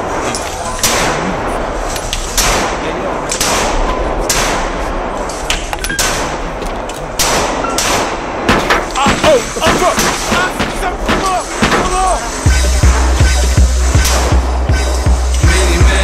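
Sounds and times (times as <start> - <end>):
background din: 0.0 - 16.0
pistol shots: 0.8 - 1.5, 2.3 - 12.2.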